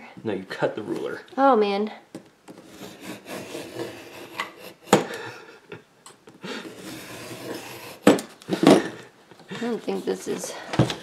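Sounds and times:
craft knife rasping through board: 2.5 - 5.2, 6.5 - 8.9.

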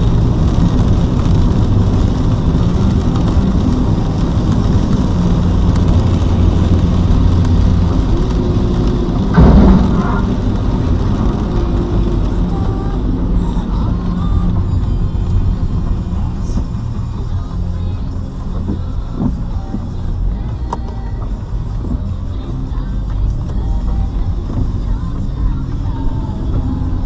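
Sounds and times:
car engine and road noise: 0.0 - 27.0
heavy rain: 0.0 - 27.0
loud low boom: 9.1 - 12.5.

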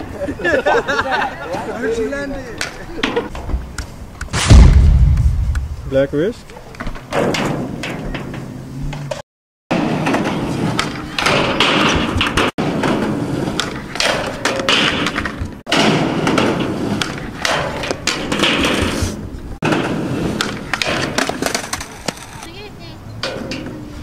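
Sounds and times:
skateboard wheels rolling on concrete: 0.0 - 4.4, 5.5 - 24.0
skateboard clattering and thudding: 6.5 - 24.0
skateboard sliding on metal rail: 7.0 - 22.5.

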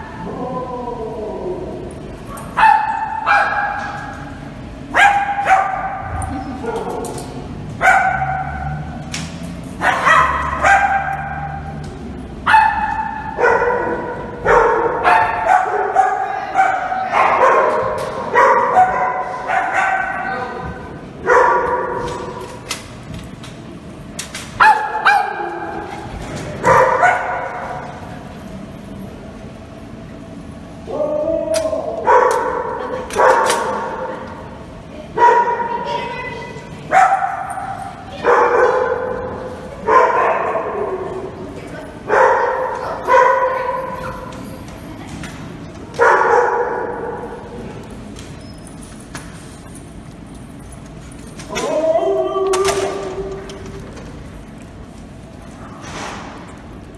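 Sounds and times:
dog barking in echoing room: 2.2 - 9.1, 9.7 - 11.8, 12.4 - 22.8, 24.4 - 28.1, 30.9 - 36.3, 36.9 - 44.5, 45.9 - 47.8
small dogs barking and yipping: 9.7 - 11.8, 12.4 - 20.6, 35.2 - 41.4, 42.0 - 44.6.

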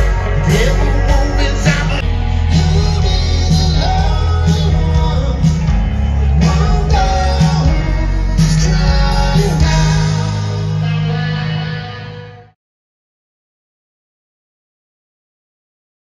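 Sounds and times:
heavy bass line: 0.0 - 12.6
person singing: 0.0 - 12.6
rock guitar: 0.0 - 12.6.

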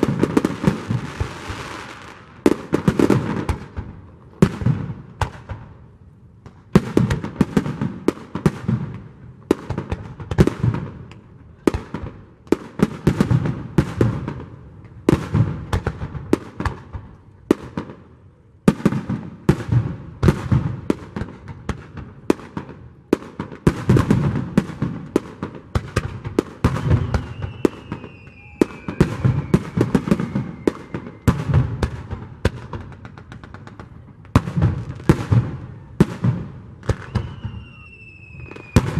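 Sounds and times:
firework bursts: 0.0 - 5.6, 18.7 - 38.9
falling firework whistle: 26.6 - 31.8, 36.8 - 38.9.

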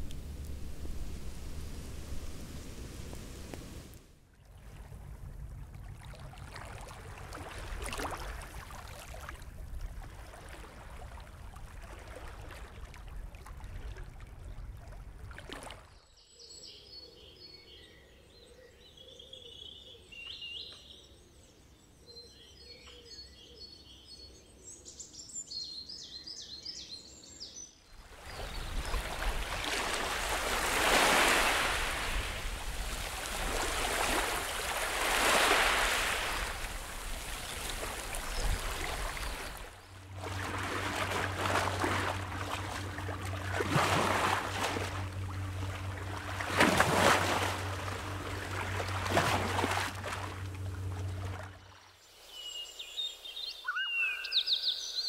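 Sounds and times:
sea water sloshing and lapping: 0.0 - 16.1, 27.9 - 52.0
birdsong with chirps and trills: 15.9 - 32.2, 33.8 - 55.0
surf washing over rocks: 28.2 - 50.5.

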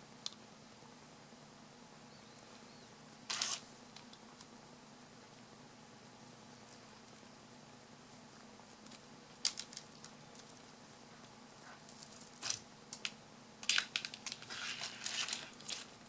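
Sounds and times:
plastic bag crinkling: 13.6 - 16.0.

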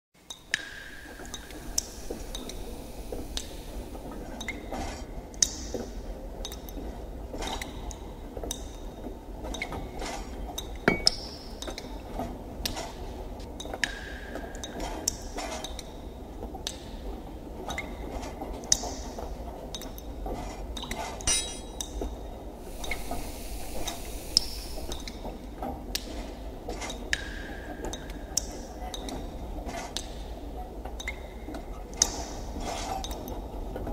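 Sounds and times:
water drips: 0.3 - 3.8
metallic clinks: 21.3 - 21.8.

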